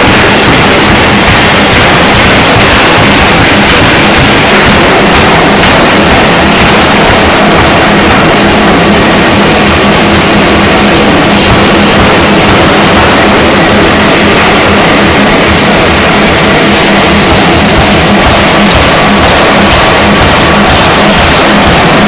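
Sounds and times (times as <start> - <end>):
low hum: 0.0 - 22.0
pneumatic power hammer running: 0.0 - 22.0.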